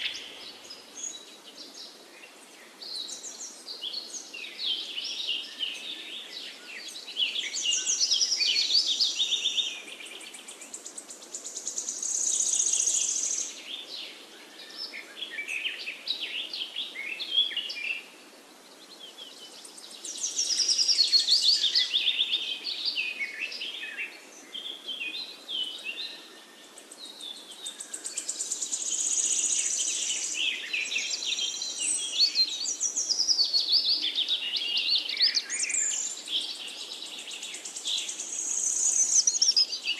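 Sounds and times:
birds chirping and trilling: 18.8s - 39.9s.

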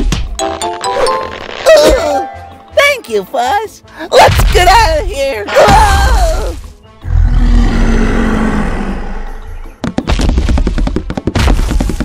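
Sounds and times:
sharp thuds and crackles: 9.7s - 12.0s.

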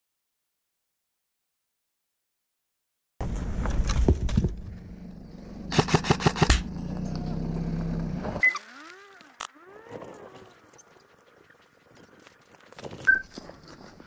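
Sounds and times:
rumbling rustling background: 3.2s - 7.9s
airsoft gun shots: 5.7s - 6.7s.

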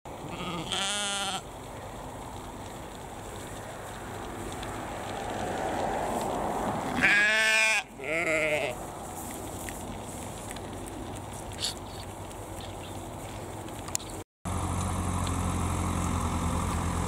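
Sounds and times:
sheep bleating: 0.3s - 1.4s, 7.0s - 8.8s.

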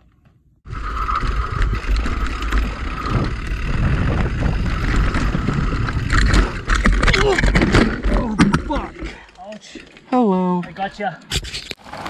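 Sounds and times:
bike tyre rumble: 0.0s - 9.3s
bike rattling over bumps: 0.0s - 10.1s
wind buffeting microphone: 0.7s - 7.5s.

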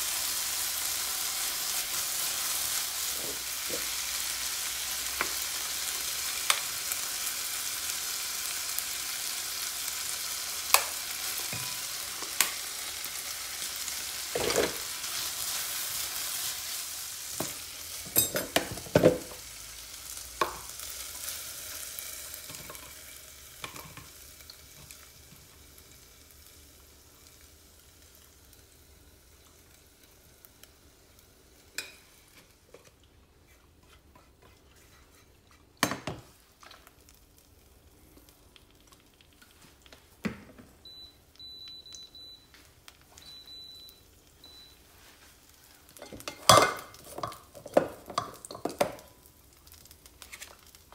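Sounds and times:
chicken sizzling in a frying pan: 0.0s - 32.8s, 35.8s - 50.9s
spatula scraping a pan: 33.4s - 35.8s.

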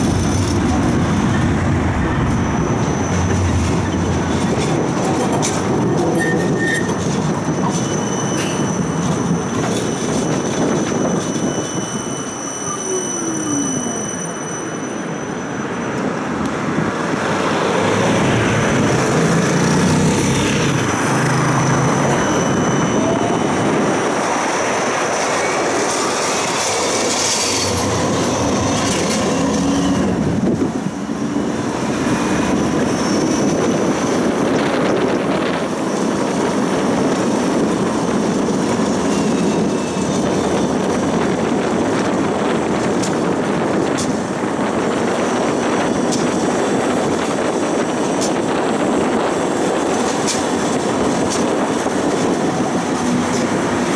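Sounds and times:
tram passing: 0.0s - 53.9s
tram wheels rumbling on rail: 0.0s - 53.9s
high wheel squeal: 0.2s - 4.8s, 5.9s - 16.3s, 19.4s - 42.5s.

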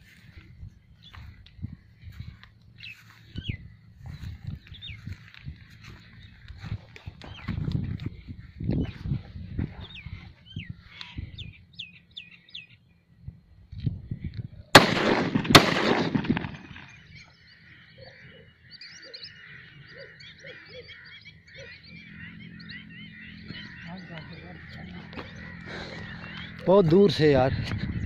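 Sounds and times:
birds chirping: 0.0s - 28.0s
loud gunshots: 14.7s - 17.0s.

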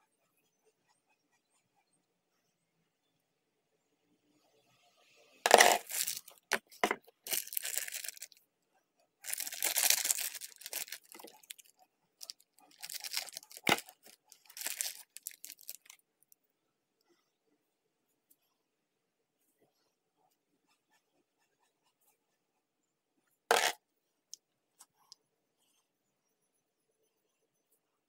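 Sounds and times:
plastic wrapper crinkling: 5.5s - 8.4s, 9.2s - 16.0s.

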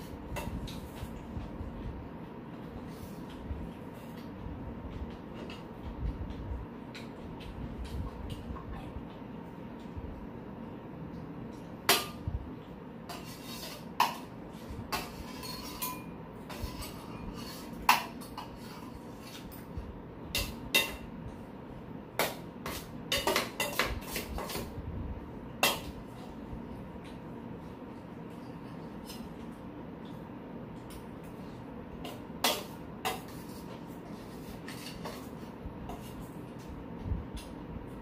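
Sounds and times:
steady low hum: 0.0s - 38.0s
spoons clinking on metal bowls: 14.9s - 19.7s, 20.3s - 21.1s, 22.2s - 24.7s.

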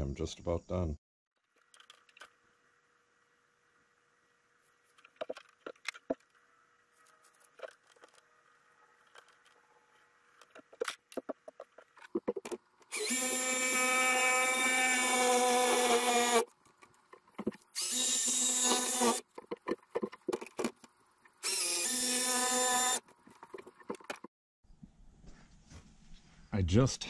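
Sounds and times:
jigsaw cutting wood: 12.9s - 16.5s, 17.8s - 19.2s, 21.4s - 23.0s
clicks and knocks of tools: 23.1s - 24.3s.

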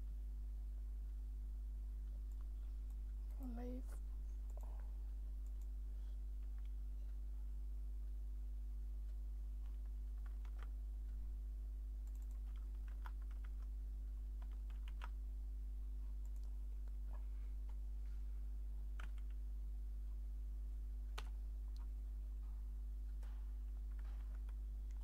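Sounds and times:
steady low hum: 0.0s - 25.0s
keyboard keystrokes: 14.4s - 15.2s, 19.0s - 19.4s.

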